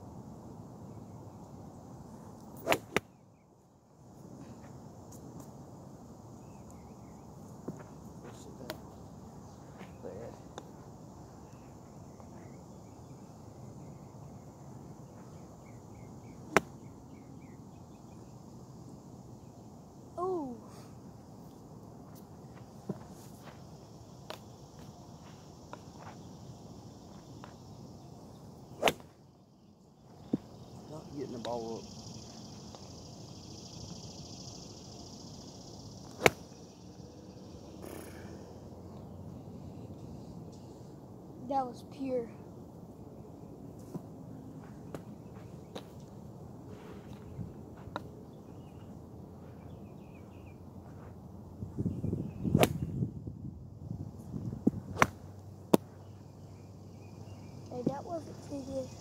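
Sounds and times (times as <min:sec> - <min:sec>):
faint chirping: 0:06.1 - 0:43.7, 0:44.5 - 0:53.1, 0:54.0 - 0:59.0
golf club striking ball: 0:36.2 - 0:36.4, 0:55.0 - 0:55.9.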